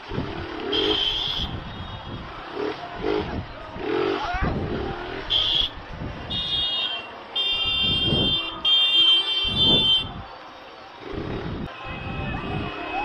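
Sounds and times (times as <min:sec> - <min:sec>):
street traffic noise: 0:00.0 - 0:13.0
high-pitched motorcycle horn: 0:00.6 - 0:01.6, 0:06.3 - 0:10.1.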